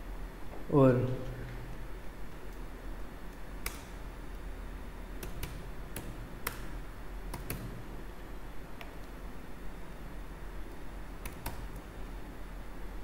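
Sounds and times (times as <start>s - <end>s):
steady low hum: 0.0s - 13.0s
keyboard key clicks: 7.3s - 7.8s.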